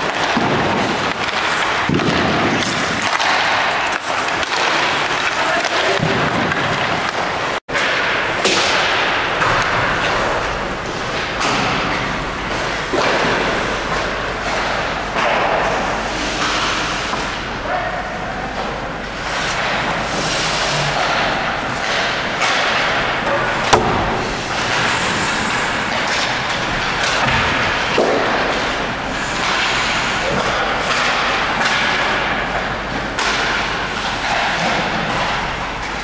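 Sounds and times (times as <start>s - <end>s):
sharp crack: 0.0s - 10.3s, 21.0s - 32.4s
hockey impacts thudding: 0.0s - 17.5s, 18.6s - 36.0s
noisy background: 0.0s - 36.0s.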